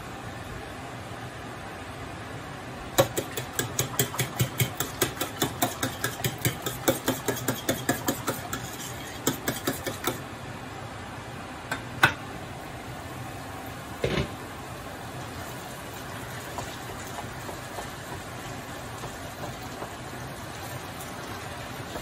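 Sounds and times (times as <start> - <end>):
fork whisking eggs in a bowl: 3.0 - 10.2, 16.3 - 22.0.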